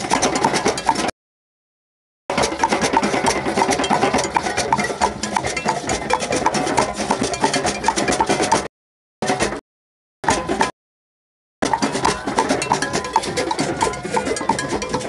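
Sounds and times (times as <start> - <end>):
hand drums playing: 2.3 - 8.7, 11.6 - 15.0
higher ringing drum stroke: 2.3 - 9.6, 11.6 - 15.0.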